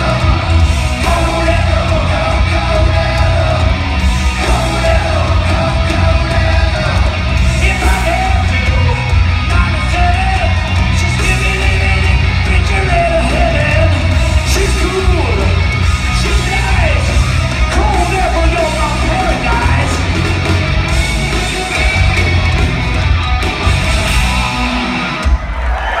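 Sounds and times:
person singing and yelling: 0:00.0 - 0:20.1
live hard rock band: 0:00.0 - 0:26.0.

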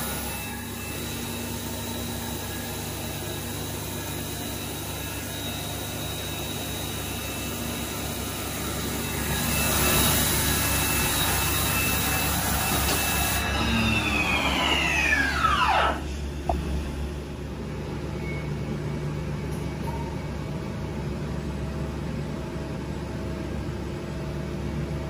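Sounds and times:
machine spindle high whine: 0:00.0 - 0:19.1
machine hum: 0:00.0 - 0:25.0.

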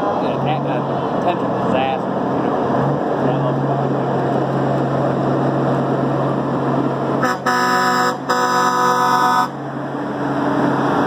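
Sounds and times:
diesel truck engine droning: 0:00.0 - 0:11.0
truck air horn blasts: 0:07.2 - 0:09.6.

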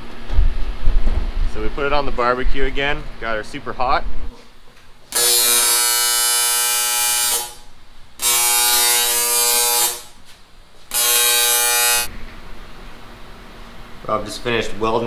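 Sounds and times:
welding arc buzzing: 0:05.0 - 0:12.1.

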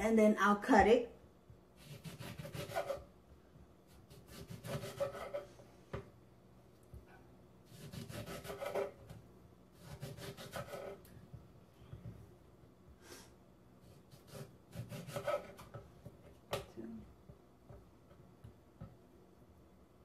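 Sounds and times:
knife cutting lemon on board: 0:01.8 - 0:03.1, 0:03.9 - 0:06.1, 0:07.7 - 0:09.2, 0:09.8 - 0:11.1, 0:13.8 - 0:16.7.

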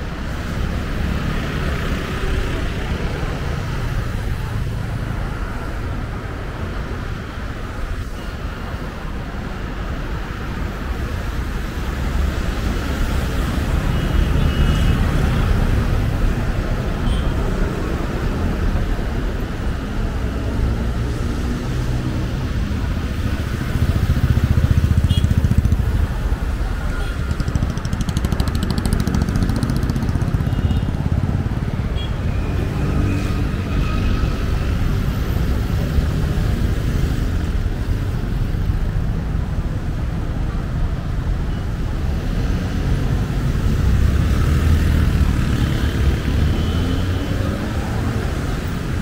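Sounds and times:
car engines passing: 0:09.1 - 0:49.0
motorcycle engines passing: 0:11.6 - 0:38.6, 0:42.1 - 0:49.0.

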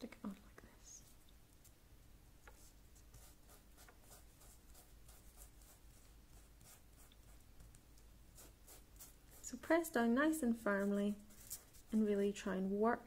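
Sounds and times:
fingertips rubbing leaf on paper: 0:10.2 - 0:12.1.

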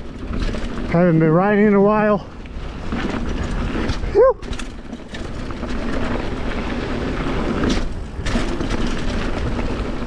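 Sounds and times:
bike rattling over rough ground: 0:00.0 - 0:10.0
bike tyres rolling on dirt: 0:00.0 - 0:10.0.

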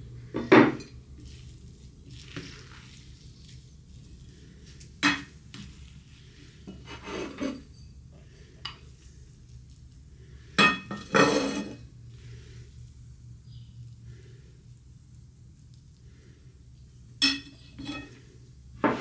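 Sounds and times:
kitchenware clatter: 0:00.3 - 0:01.0, 0:05.0 - 0:05.4, 0:06.7 - 0:08.0, 0:10.6 - 0:11.9, 0:17.2 - 0:18.2, 0:18.8 - 0:19.0
kitchenware scraping: 0:00.3 - 0:01.0, 0:05.0 - 0:05.8, 0:06.6 - 0:08.0, 0:10.6 - 0:11.9, 0:17.2 - 0:19.0.

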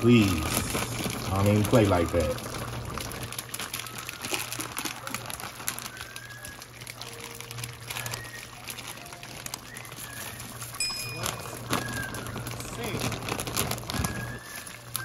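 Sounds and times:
bubbles popping in boiling pot: 0:00.0 - 0:15.0
faint high tones: 0:10.8 - 0:12.1.

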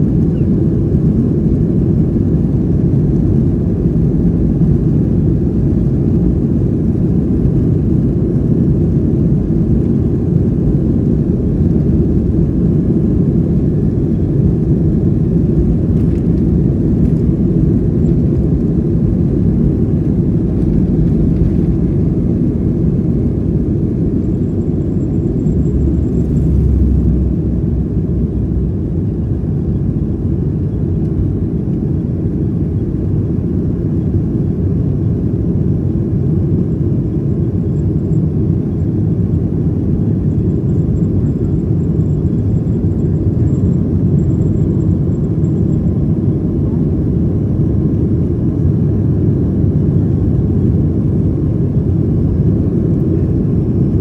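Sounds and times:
jet engines at takeoff thrust: 0:00.0 - 0:54.0
runway rumble: 0:12.4 - 0:31.4.

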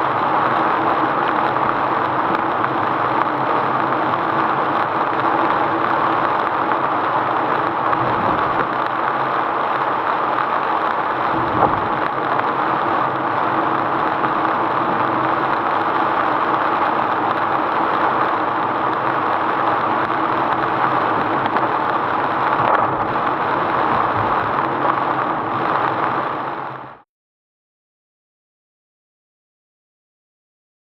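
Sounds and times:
tyres on wet road: 0:00.0 - 0:27.0
rain hitting car body: 0:00.1 - 0:27.0.

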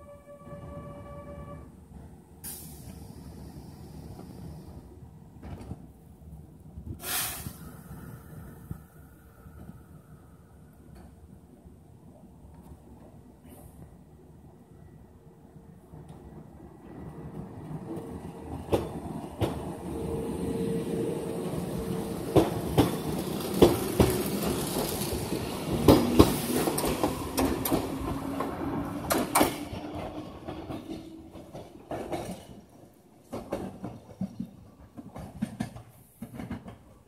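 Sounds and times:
electric train hum rising in pitch: 0:19.6 - 0:30.0
train wheels clacking over rail joints: 0:21.8 - 0:37.0.

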